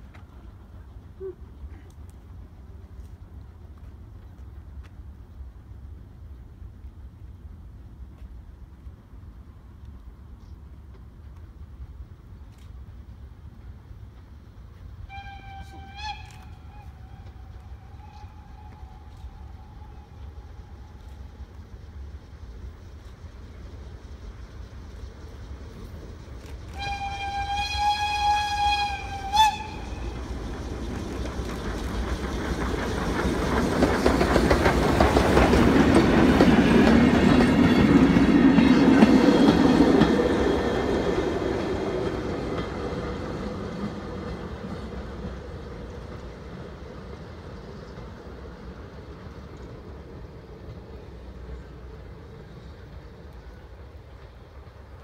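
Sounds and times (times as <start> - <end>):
steam train passing: 0.0 - 55.0
steam locomotive whistle: 15.0 - 20.8, 26.7 - 30.5.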